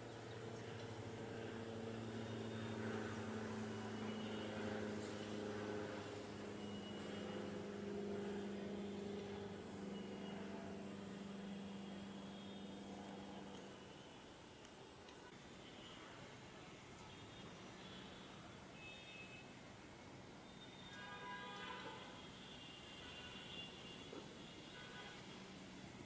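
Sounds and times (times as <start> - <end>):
propeller aircraft droning overhead: 0.0 - 14.4.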